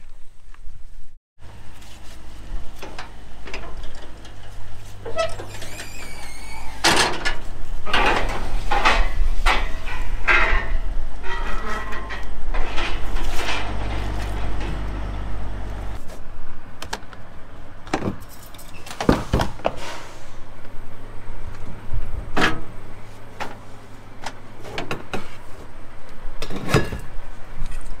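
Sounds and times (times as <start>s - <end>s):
low steady rumble: 9.4s - 16.7s.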